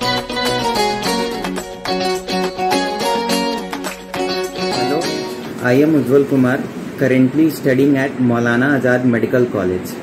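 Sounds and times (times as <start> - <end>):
plucked string instrument music: 0.0 - 5.6.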